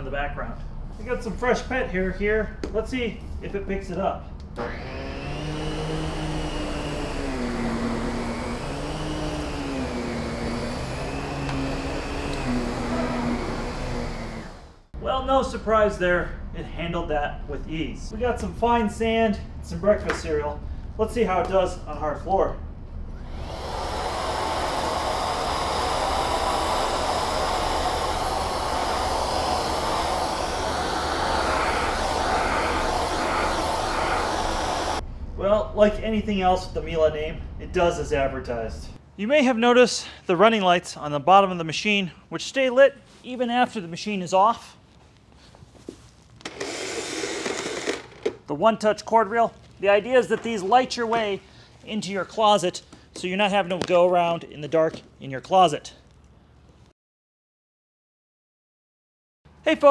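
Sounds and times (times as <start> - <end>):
vacuum cleaner running over carpet: 4.6 - 14.8, 23.3 - 35.0.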